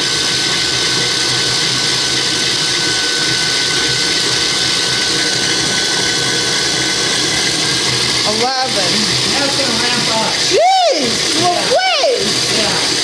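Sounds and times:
mixer rattling: 0.0 - 13.0
stand mixer motor whining: 0.0 - 13.0.

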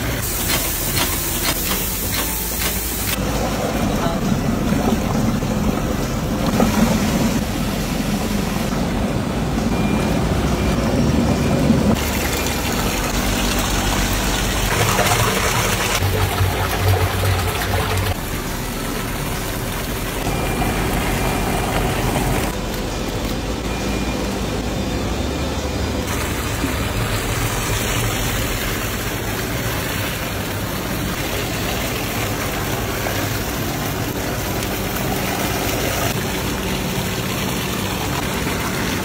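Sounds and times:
liquid churning: 12.0 - 18.4.

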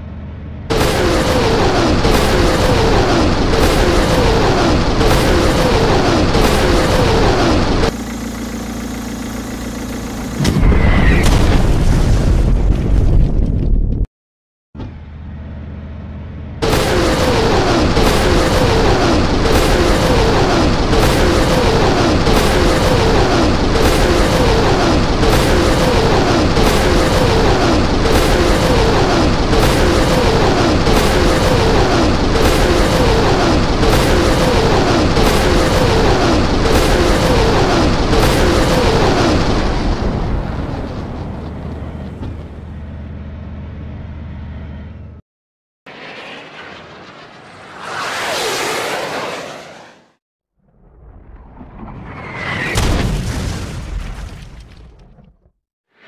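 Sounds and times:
rocket launch blasts: 0.7 - 8.0, 10.4 - 13.4, 16.6 - 42.5, 45.9 - 54.5
falling whoosh: 45.9 - 52.9.

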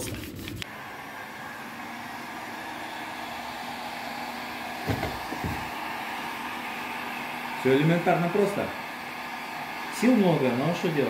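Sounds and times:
cloth scrubbing: 0.0 - 0.7
heat gun fan hiss: 0.6 - 11.0.

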